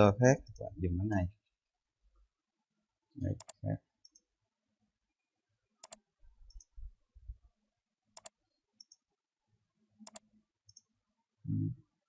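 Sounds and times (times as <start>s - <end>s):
computer mouse clicks: 3.3s - 4.3s, 5.8s - 6.8s, 8.2s - 9.1s, 10.0s - 10.9s.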